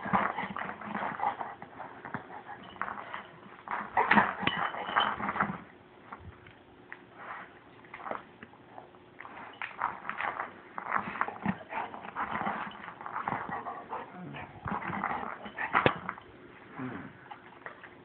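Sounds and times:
dog chewing rubber ball: 0.0s - 5.7s, 7.9s - 16.5s.

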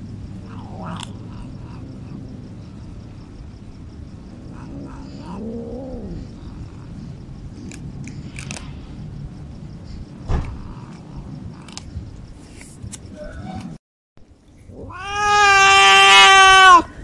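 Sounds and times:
cat wailing: 0.4s - 2.3s, 4.5s - 6.3s, 14.7s - 17.0s
loud thump: 10.2s - 10.7s.

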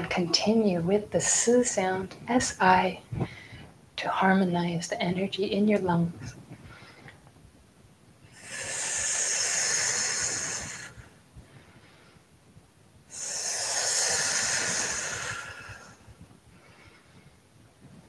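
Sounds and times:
woman breathing out hissing sound: 8.3s - 11.1s, 13.1s - 16.1s.

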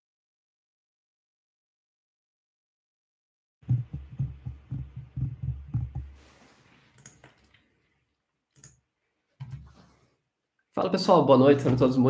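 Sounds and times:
muffled low thumps: 3.6s - 6.2s
faint clicks: 6.9s - 7.7s.

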